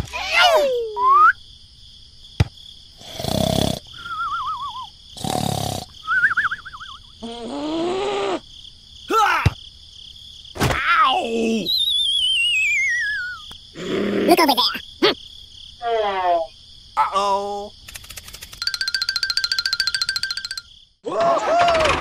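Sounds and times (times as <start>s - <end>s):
cartoon snoring: 3.0s - 4.0s, 5.2s - 6.0s, 7.2s - 8.4s, 13.8s - 14.6s
wobbly whistle: 4.0s - 4.9s, 6.0s - 7.1s, 11.7s - 13.5s.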